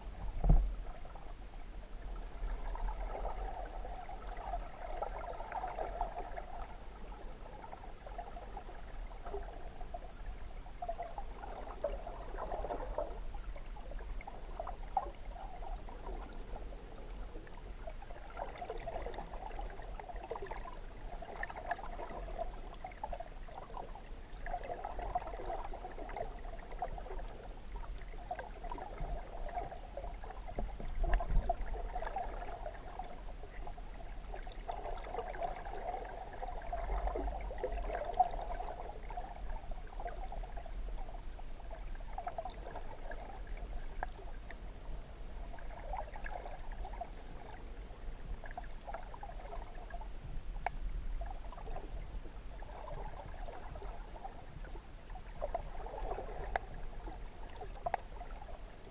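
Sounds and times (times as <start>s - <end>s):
muffled underwater hum: 0.0s - 58.9s
water gurgling: 0.0s - 58.9s.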